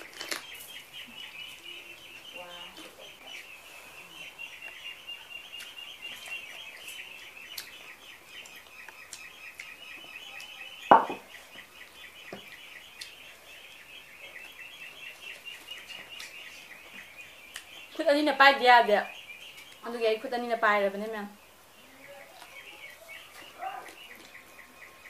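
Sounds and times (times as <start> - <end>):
loud thump: 10.9 - 11.2.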